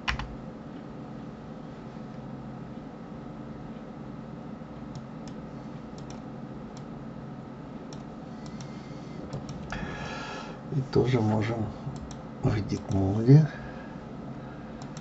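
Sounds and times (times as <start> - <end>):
steady low hum: 0.0 - 15.0
computer mouse clicks: 4.9 - 5.4, 6.0 - 6.9, 7.9 - 9.8, 12.0 - 12.2, 14.8 - 15.0.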